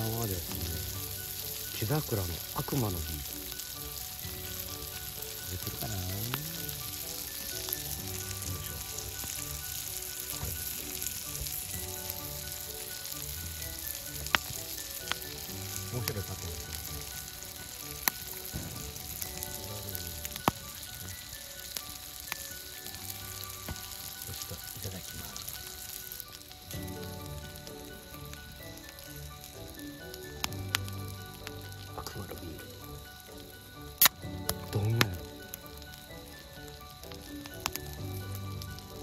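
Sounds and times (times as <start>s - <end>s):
meat sizzling in a pan: 0.0s - 39.0s
sharp pops: 34.0s - 35.2s.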